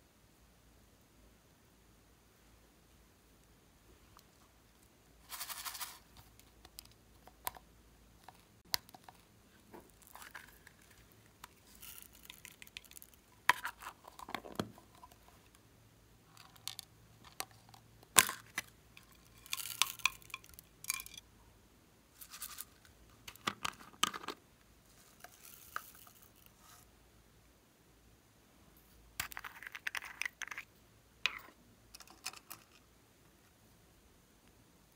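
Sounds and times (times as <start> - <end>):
beads and glitter shaken out: 5.2 - 6.2, 11.6 - 13.2.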